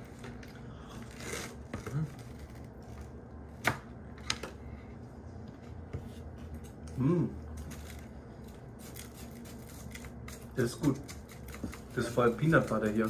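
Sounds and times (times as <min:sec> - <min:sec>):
spoons scraping in paper cups: 0:08.8 - 0:13.0.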